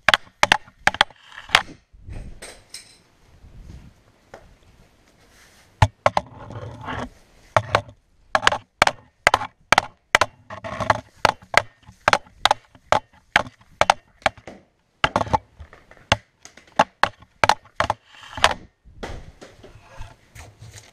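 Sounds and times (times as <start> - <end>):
hockey stick knocking puck: 0.0 - 1.7, 7.5 - 19.7
stick scraping floor: 0.5 - 1.8, 5.2 - 9.5, 10.4 - 20.9.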